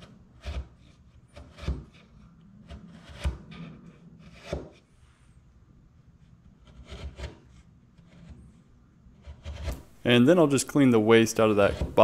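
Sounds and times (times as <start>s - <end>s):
chisel scraping wood: 0.0s - 4.9s, 6.2s - 10.0s, 11.3s - 12.0s.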